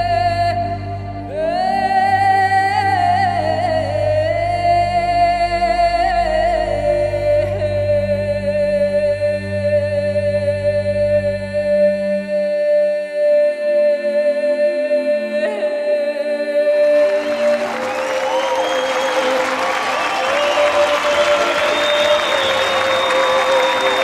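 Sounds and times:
singer holding high note: 15.4s - 24.0s
crowd applause: 16.9s - 24.0s.

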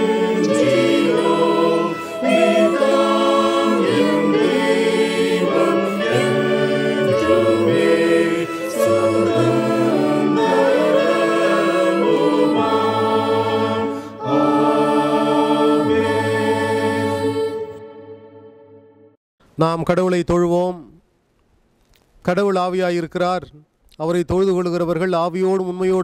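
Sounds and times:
choir singing a hymn: 0.0s - 18.5s.

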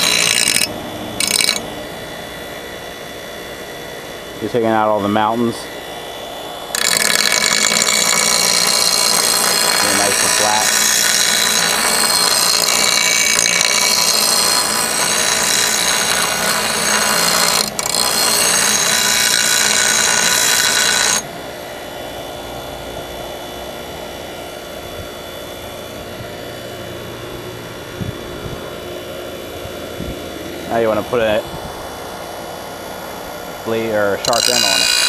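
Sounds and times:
metal blade grinding: 0.0s - 1.7s, 6.7s - 21.2s, 34.0s - 35.0s
bench grinder humming: 0.0s - 35.0s.

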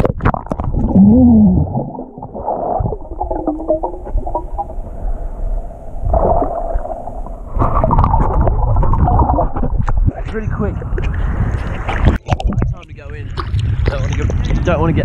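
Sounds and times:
underwater rush of current: 0.2s - 10.1s.

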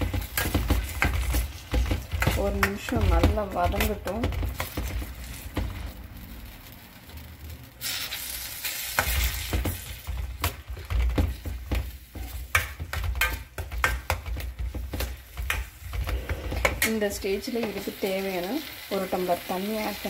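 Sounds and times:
spoon scraping a pan: 0.0s - 5.6s
food sizzling in oil: 0.0s - 20.0s.

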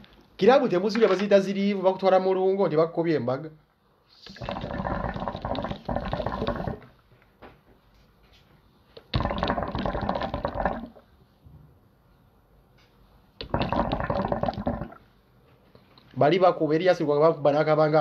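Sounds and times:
water pipe bubbling: 4.2s - 7.0s, 9.0s - 11.1s, 13.4s - 15.1s.

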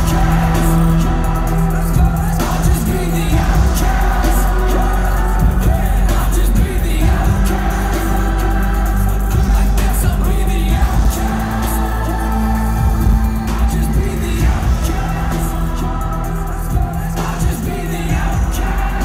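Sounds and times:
heavy bass: 0.0s - 19.0s
person singing: 0.0s - 19.0s.

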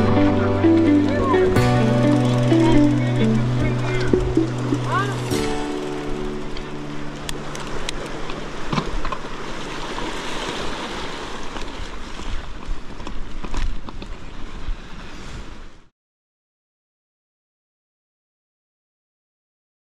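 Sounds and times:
mountain bike rumbling on dirt: 0.0s - 9.8s.

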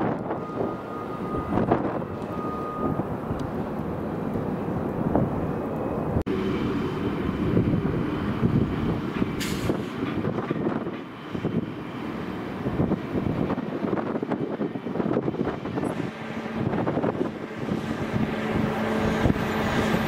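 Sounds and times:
jet engines rumbling: 0.0s - 20.0s
short hiss: 9.4s - 9.9s.

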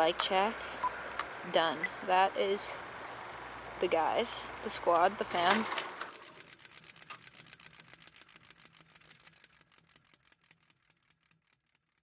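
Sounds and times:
film projector clicking and humming: 0.0s - 12.0s.

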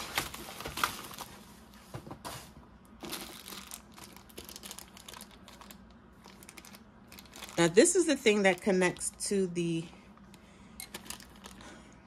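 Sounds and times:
plastic packaging crinkling: 0.0s - 1.6s, 3.0s - 9.5s, 10.8s - 11.8s.

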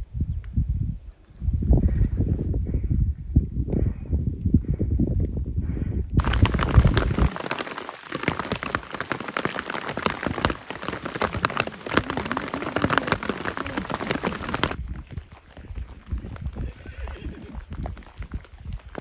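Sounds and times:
rain falling on surfaces: 6.2s - 19.0s.

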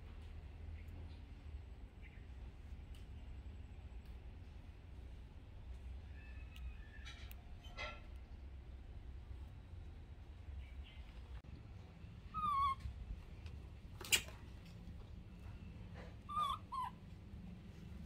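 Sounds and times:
baby monkey whimpering calls: 12.3s - 13.0s, 16.1s - 17.1s.

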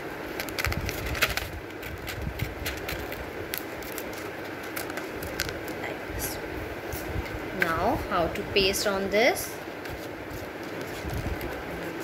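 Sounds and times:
scissors snipping paper: 0.4s - 5.6s.

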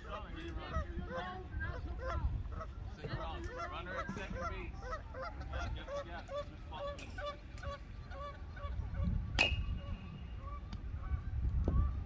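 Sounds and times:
geese honking: 0.0s - 9.2s
metal bat hitting ball: 9.4s - 9.8s.

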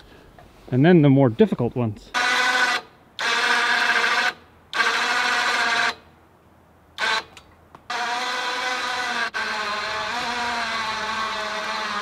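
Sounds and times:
winch motor whining: 2.2s - 6.0s, 7.0s - 12.0s.

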